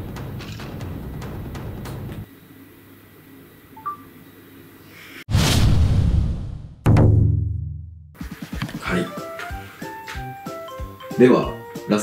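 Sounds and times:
drum-heavy background music: 0:00.0 - 0:02.2, 0:06.8 - 0:12.0.

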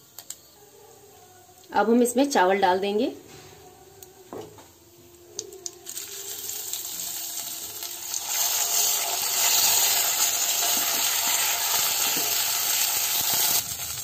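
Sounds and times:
rice sizzling in hot fat: 0:05.4 - 0:14.0.

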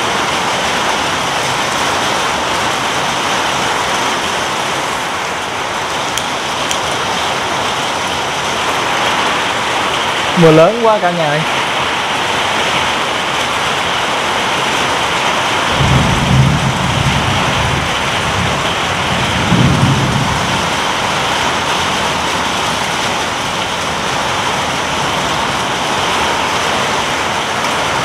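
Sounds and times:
heavy rain: 0:00.0 - 0:28.0
thunder rumbling: 0:15.4 - 0:28.0.

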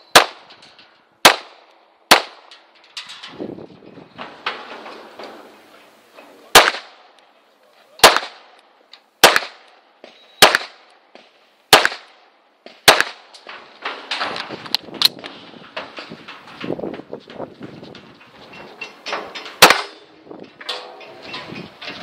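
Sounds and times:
pistol shots: 0:00.1 - 0:00.4, 0:01.2 - 0:02.5, 0:06.5 - 0:07.2, 0:08.0 - 0:08.6, 0:09.2 - 0:09.8, 0:10.4 - 0:13.3, 0:19.6 - 0:20.0.

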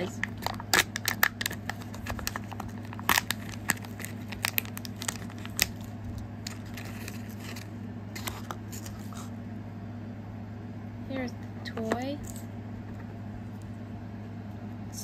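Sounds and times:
plastic wrapping crinkling and tearing: 0:00.0 - 0:09.3
steady low hum: 0:00.0 - 0:15.0.

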